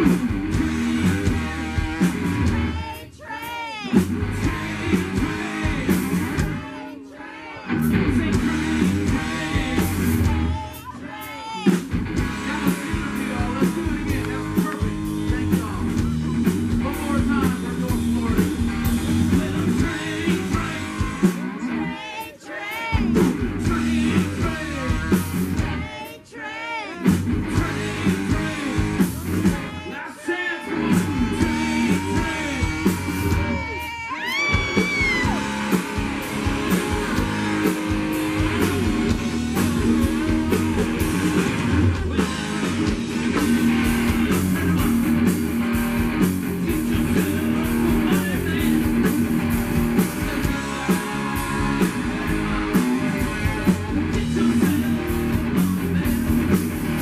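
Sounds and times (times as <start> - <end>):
bending lead guitar notes: 0.0 - 2.8, 30.7 - 57.0
live rock band playing: 0.0 - 6.9, 7.7 - 57.0.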